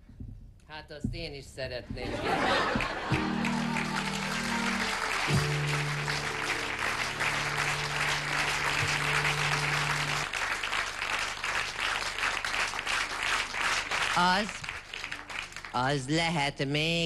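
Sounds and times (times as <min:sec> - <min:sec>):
audience applauding: 0:02.2 - 0:15.8
instrumental song accompaniment: 0:02.7 - 0:10.3.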